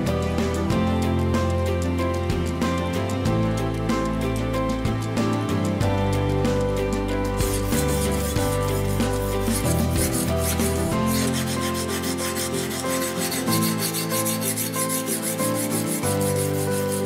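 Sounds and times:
background music: 0.0s - 17.0s
sharpening stone scraping knife blade: 7.4s - 17.0s.

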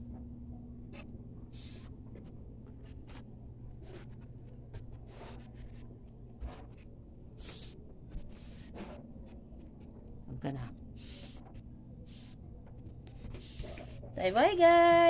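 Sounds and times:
steady low hum: 0.0s - 15.0s
faint rustles and scuffs: 0.9s - 10.2s.

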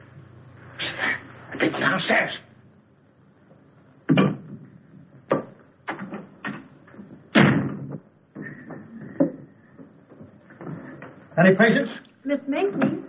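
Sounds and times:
sharp knocks and thuds: 4.0s - 11.3s
wooden door banging shut: 7.3s - 8.0s.

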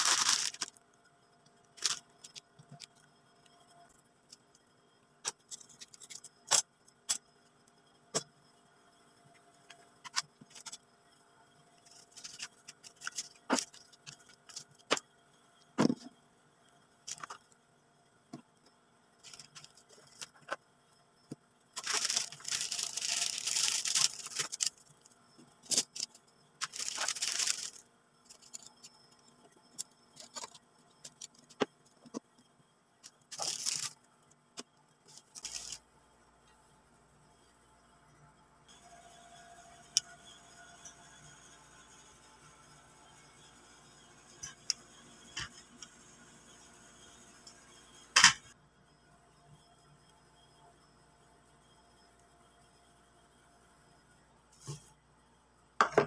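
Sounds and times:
plastic rustling: 0.0s - 0.8s, 1.8s - 3.0s, 11.8s - 15.0s, 19.2s - 20.6s, 21.8s - 25.0s, 25.6s - 28.8s, 33.3s - 34.0s, 35.1s - 35.8s.

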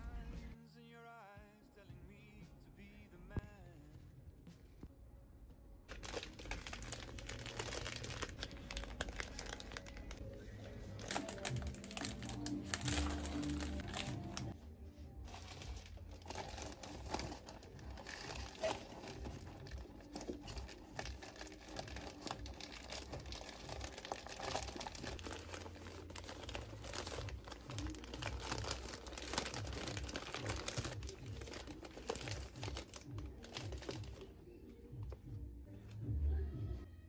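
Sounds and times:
plastic wrapping crinkling: 5.9s - 14.6s, 15.2s - 34.3s.

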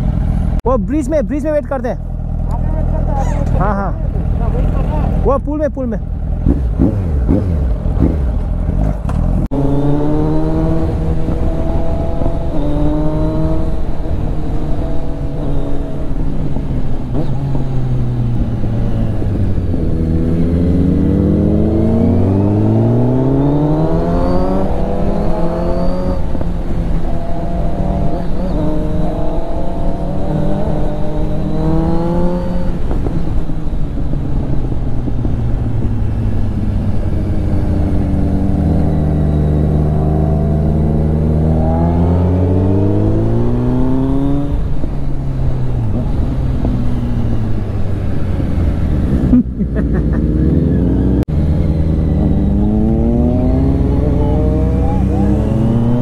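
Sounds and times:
motorcycle engine revving: 0.0s - 56.0s
wind noise: 6.4s - 56.0s.

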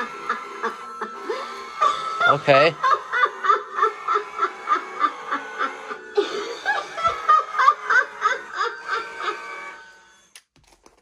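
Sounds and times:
high giggling cackle from speaker: 2.8s - 9.6s.

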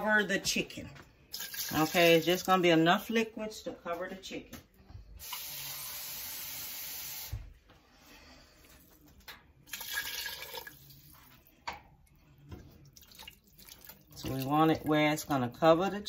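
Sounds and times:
liquid pouring into pot: 1.3s - 2.5s, 9.6s - 14.9s
water running from tap: 1.3s - 2.5s, 5.2s - 7.4s, 9.7s - 11.2s.

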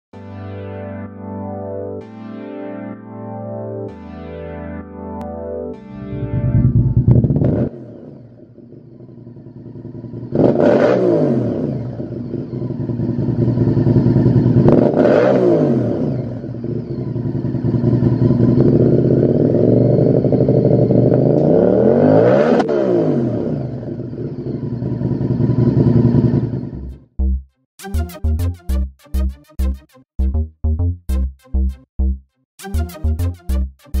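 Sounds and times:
motorcycle engine revving: 6.1s - 27.1s.

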